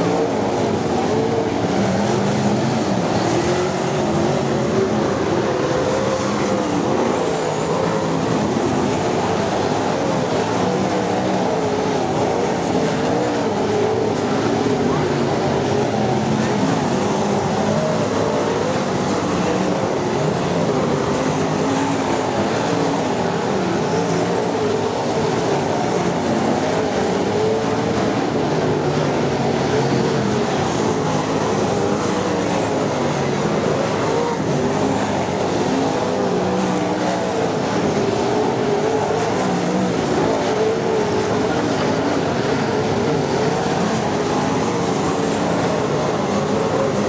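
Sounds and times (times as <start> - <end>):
racing car engines: 0.0 - 47.0.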